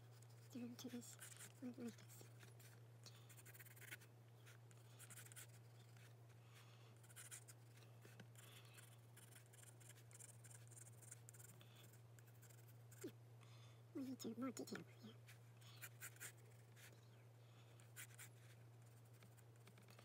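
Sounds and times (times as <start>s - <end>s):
pencil scratching on paper: 0.0s - 6.1s, 7.0s - 13.1s, 15.3s - 16.9s, 17.9s - 20.0s
low steady hum: 0.0s - 20.0s.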